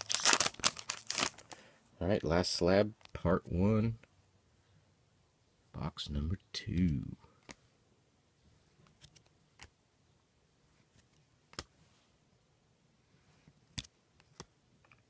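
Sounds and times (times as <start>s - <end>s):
cards clicking as slid: 13.7s - 15.0s.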